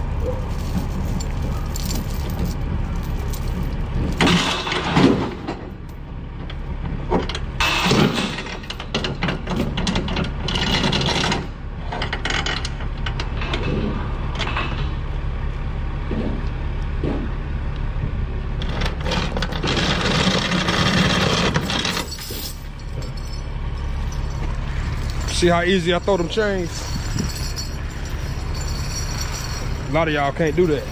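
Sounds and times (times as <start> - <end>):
steel chains rattling and clanking: 0.0 - 6.0, 7.6 - 15.0, 18.6 - 30.9
steady low rumble: 0.0 - 7.6, 11.5 - 18.9, 21.4 - 30.9.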